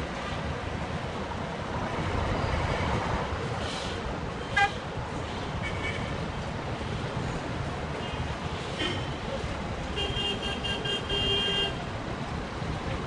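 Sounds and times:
passing vehicles: 0.0s - 13.0s
car horn toot: 10.0s - 11.8s.

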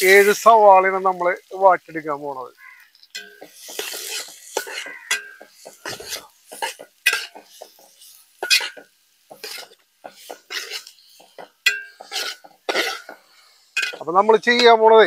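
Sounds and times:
spoon scraping a metal pot: 2.9s - 14.1s.

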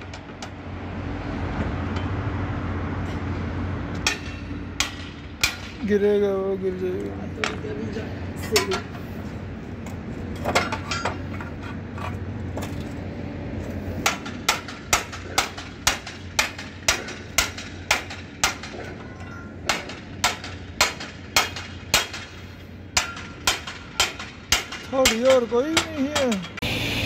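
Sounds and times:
hammer striking metal grate: 3.9s - 6.0s, 8.5s - 9.0s, 14.0s - 26.6s.

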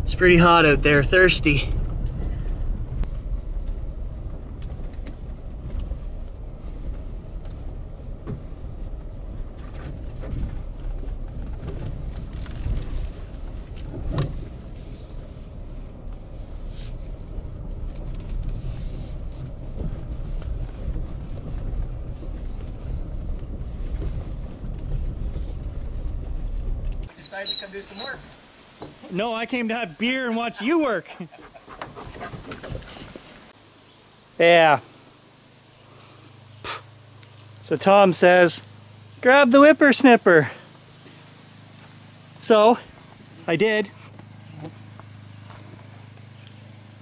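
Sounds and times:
truck engine and tyres rumbling: 0.0s - 47.0s.

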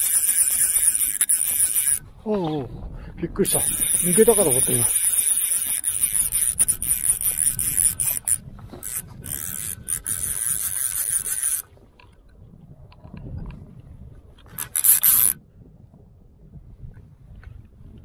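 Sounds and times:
fly reel drag ratcheting: 0.0s - 2.0s, 3.4s - 11.7s, 14.4s - 15.4s.

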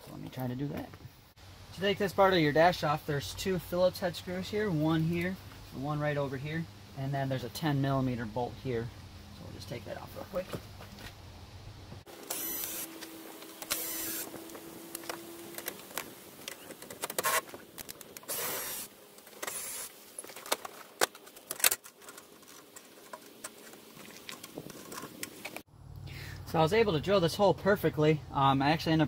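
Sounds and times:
cordless drill whining: 12.2s - 15.2s, 18.3s - 19.9s.

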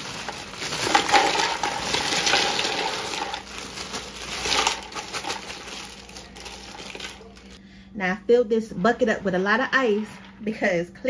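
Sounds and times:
ice cubes clattering and splashing: 0.0s - 7.6s.

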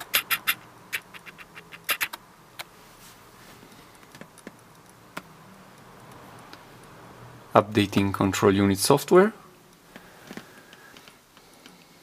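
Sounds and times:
computer keys and mouse clicks: 0.0s - 2.2s.

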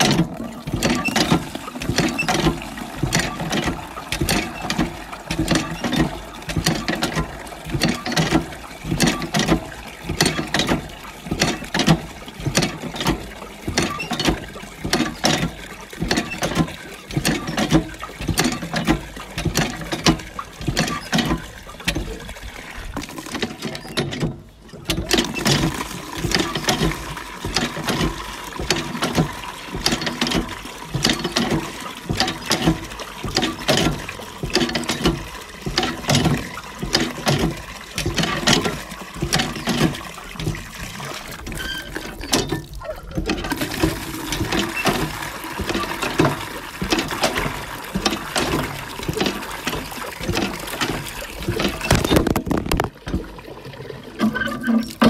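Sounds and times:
hand pump mechanism clacking: 0.0s - 55.0s
water splashing: 0.0s - 55.0s.

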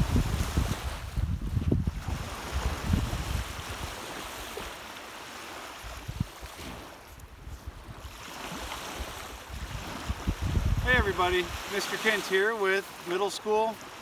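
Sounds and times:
wind buffeting microphone: 0.0s - 4.7s, 5.8s - 11.7s
rushing hiss of wind: 0.0s - 12.4s.

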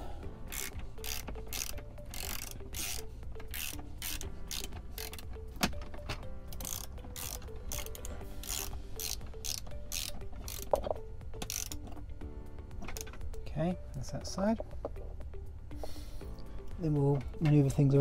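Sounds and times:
socket ratchet clicking: 0.4s - 12.0s, 12.8s - 13.3s.

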